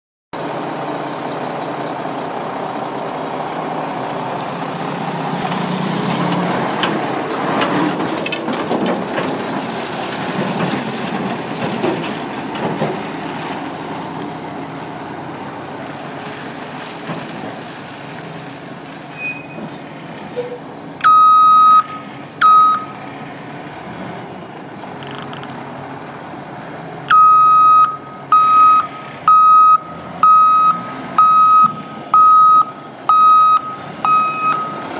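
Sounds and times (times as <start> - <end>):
diesel truck engine running: 0.4 - 34.9
reverse alarm beeps: 21.0 - 23.0, 27.1 - 34.9.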